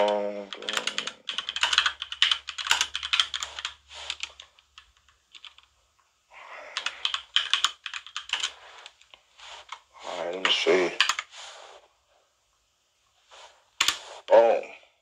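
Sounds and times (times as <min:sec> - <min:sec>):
typing on computer keyboard: 0:00.0 - 0:05.7, 0:06.7 - 0:09.0, 0:11.0 - 0:11.3, 0:13.8 - 0:14.0.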